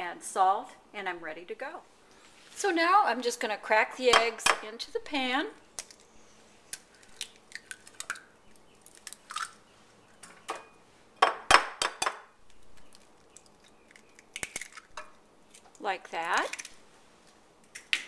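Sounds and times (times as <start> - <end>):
eggshells crackling: 5.6 - 9.7, 12.4 - 18.0.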